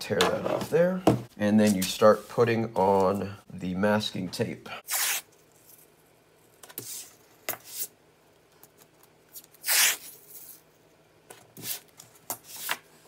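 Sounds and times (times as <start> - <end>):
masking tape ripping off roll: 4.9 - 5.3, 9.6 - 10.1.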